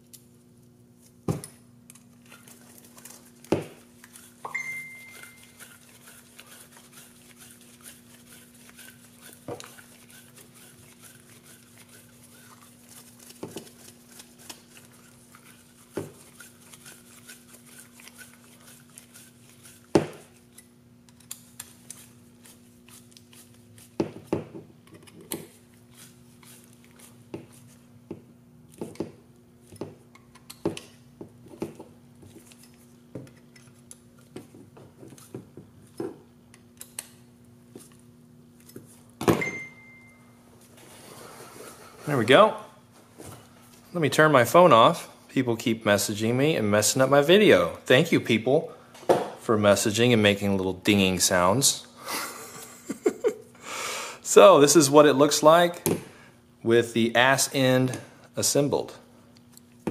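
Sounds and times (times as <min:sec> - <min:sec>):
brief high steady tone: 0:04.5 - 0:05.6, 0:39.4 - 0:40.4
small parts and tools clicking: 0:20.5 - 0:22.0.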